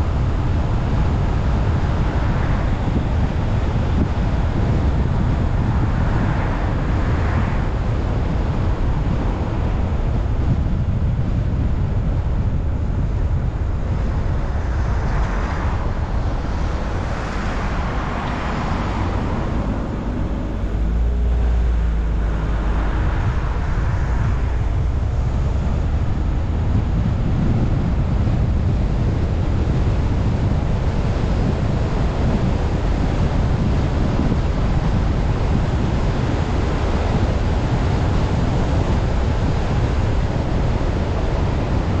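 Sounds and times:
car tyres rumbling on road: 0.0s - 42.0s
wind buffeting microphone: 0.0s - 42.0s.

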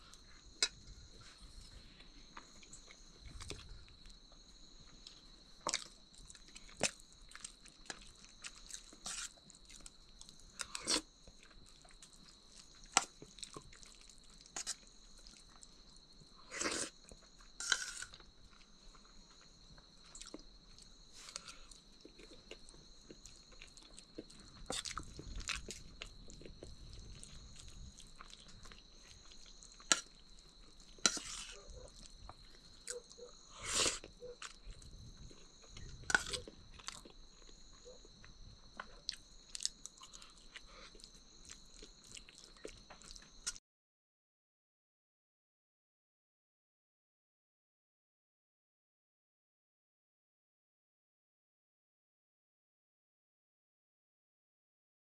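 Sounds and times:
chewing: 4.9s - 43.6s.

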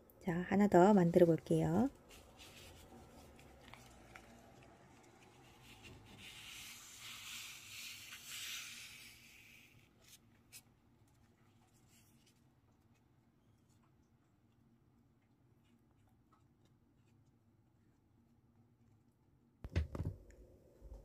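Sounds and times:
paper rustling: 1.9s - 12.5s.

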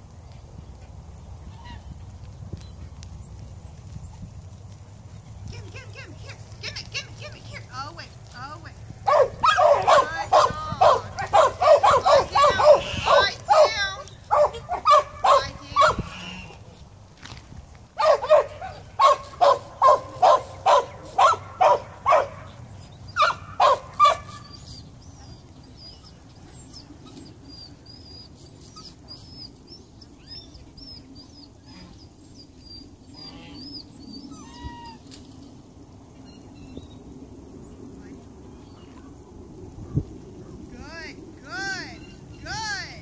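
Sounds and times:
dog barking: 9.1s - 16.1s, 18.0s - 22.6s, 23.2s - 24.4s.

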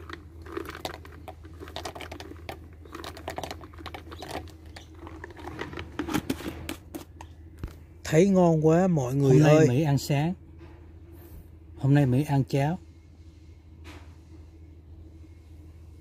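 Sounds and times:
nuts rattling in a jar: 0.0s - 6.1s
steady low hum: 0.0s - 16.0s.

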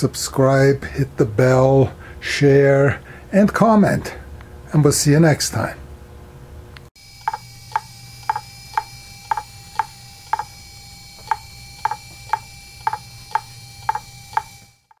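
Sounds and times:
faint hard drive whine: 7.0s - 15.0s
hard drive clicking: 7.2s - 10.6s, 11.2s - 15.0s.

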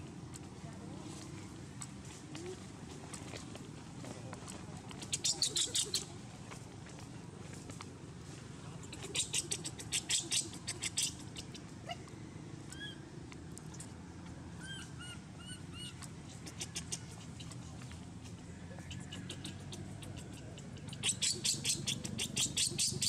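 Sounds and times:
baby monkey squeaking: 5.0s - 6.1s, 8.9s - 11.6s, 14.6s - 17.6s, 18.8s - 23.0s.

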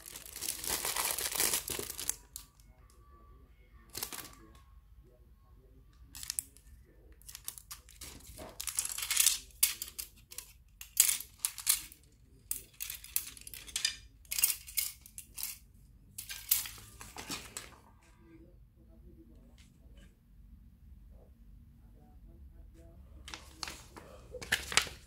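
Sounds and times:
plastic packaging crinkling: 0.0s - 2.5s, 3.9s - 4.4s
plastic clips clicking and clattering: 7.2s - 15.6s, 16.2s - 16.8s.

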